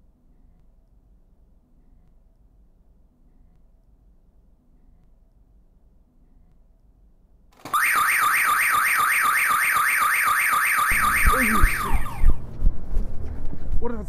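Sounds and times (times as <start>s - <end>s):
warbling electronic alarm tone: 7.7s - 12.4s.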